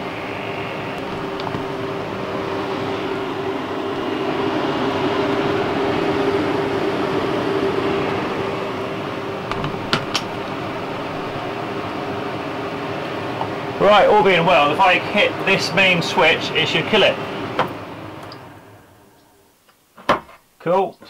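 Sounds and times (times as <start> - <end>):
roof vent fan humming: 0.0 - 20.9.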